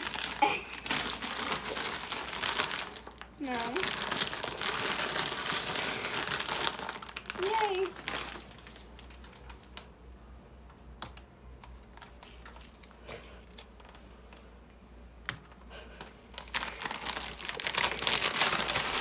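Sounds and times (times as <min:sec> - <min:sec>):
plastic snack bag crinkling: 0:00.0 - 0:09.8, 0:11.8 - 0:14.0, 0:16.3 - 0:19.0.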